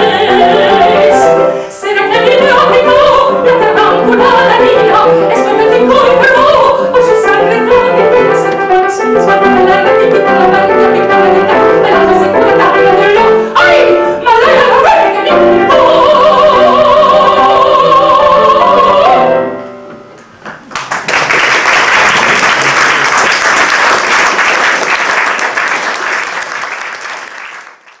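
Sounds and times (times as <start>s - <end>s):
woman singing operatically: 0.0s - 19.5s
piano: 0.0s - 28.0s
audience applause: 20.5s - 28.0s.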